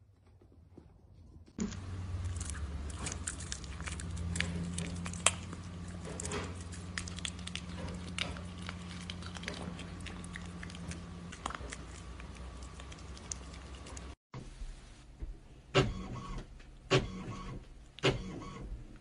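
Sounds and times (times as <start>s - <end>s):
low hum: 1.4s - 15.5s
cat chewing with mouth clicks: 1.8s - 14.2s.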